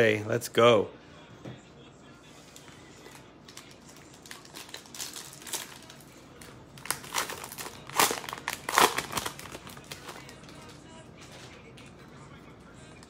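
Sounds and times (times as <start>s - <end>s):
cellophane wrapper crinkling and tearing: 3.4s - 11.5s.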